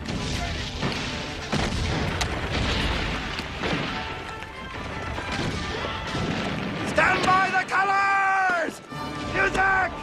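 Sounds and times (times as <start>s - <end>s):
artillery booms: 0.0s - 7.8s
gunshots: 0.0s - 7.8s.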